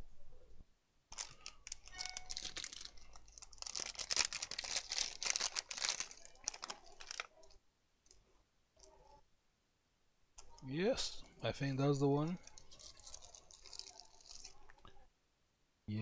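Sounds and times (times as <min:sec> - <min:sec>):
packaging rustling: 0:01.1 - 0:07.6, 0:12.2 - 0:14.8.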